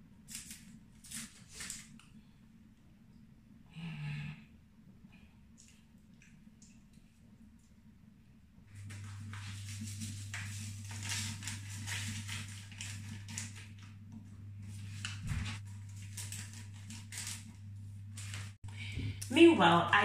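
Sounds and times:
steady low hum: 2.0s - 20.0s
wrappers crinkling and rustling: 8.7s - 13.9s, 14.7s - 18.6s.

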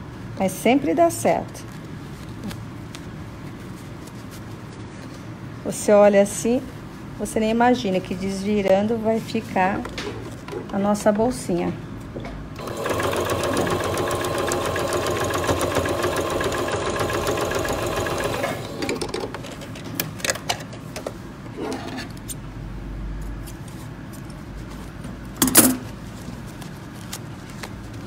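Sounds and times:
sewing machine stitching: 12.6s - 19.3s
fabric clicks and rustles: 23.4s - 28.0s
loud handling noise: 25.1s - 28.0s.

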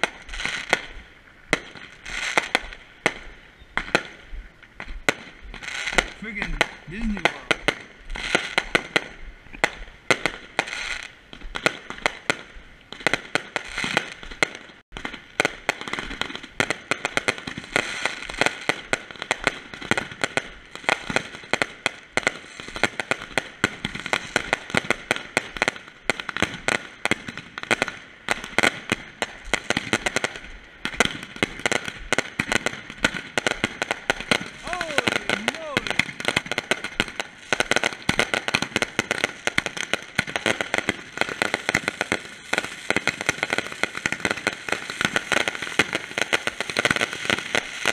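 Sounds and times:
fireworks crackling and banging: 0.0s - 47.9s
sizzling sparks: 33.5s - 47.9s.

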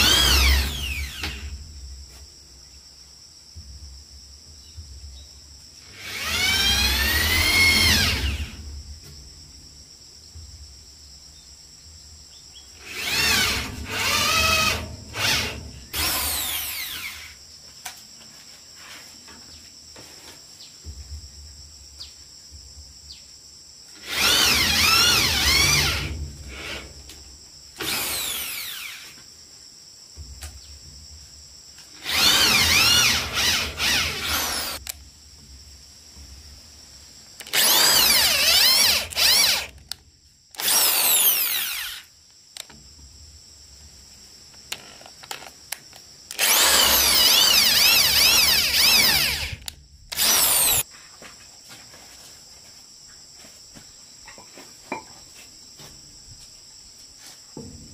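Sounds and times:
electric drill boring into wood: 0.0s - 1.5s, 5.8s - 8.6s, 12.8s - 17.4s, 24.0s - 26.9s, 27.8s - 29.2s, 32.0s - 34.8s, 37.4s - 39.8s, 40.6s - 42.1s, 46.3s - 50.8s.

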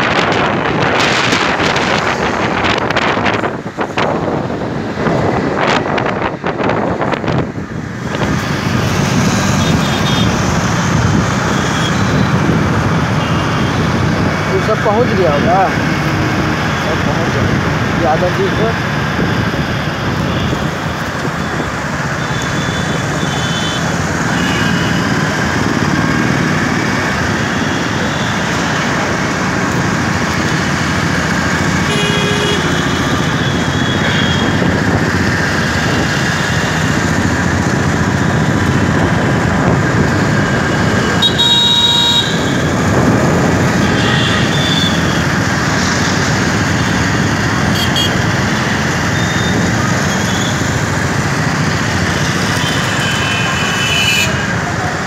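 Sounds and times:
motorcycle engine and road noise: 0.0s - 55.0s
vehicle horns tooting: 9.5s - 10.4s, 22.3s - 25.1s, 31.8s - 34.7s, 41.0s - 42.8s, 43.7s - 45.3s, 47.7s - 48.4s, 52.4s - 54.6s.

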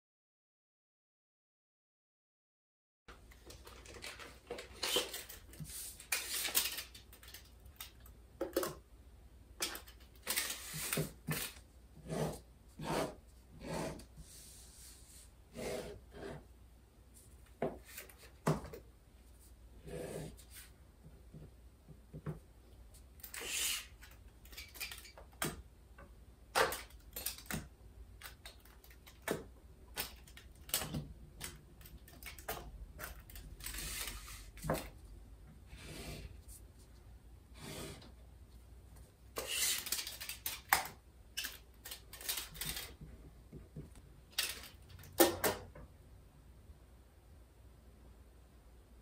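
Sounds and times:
pen scratching on paper: 12.0s - 14.5s, 15.5s - 16.4s
tape measure clicking and rattling: 23.2s - 25.2s, 26.6s - 27.6s, 39.4s - 43.0s, 44.3s - 45.1s.

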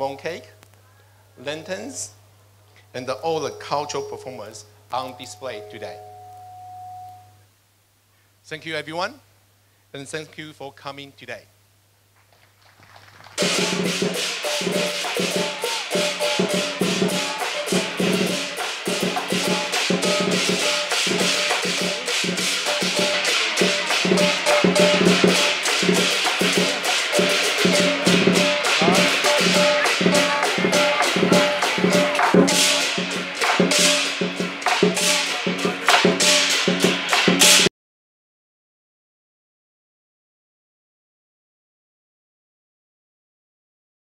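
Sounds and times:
instrumental music with percussive beat: 13.4s - 37.7s.

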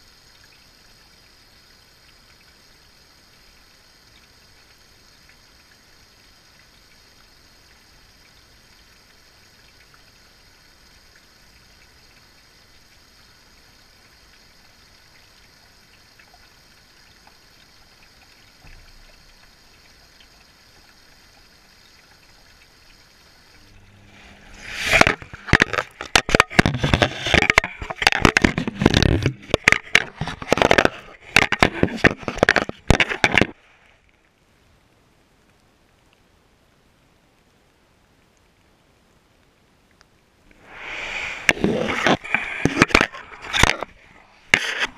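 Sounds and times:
faint steady hum: 0.0s - 44.9s
water splashing in washing machine: 22.9s - 33.5s.

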